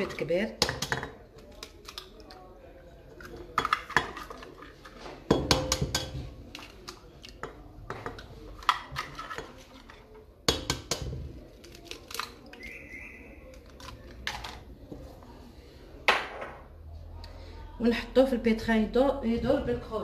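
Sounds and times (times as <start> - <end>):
eggs cracking on metal bowl: 0.0 - 2.5, 3.1 - 14.7.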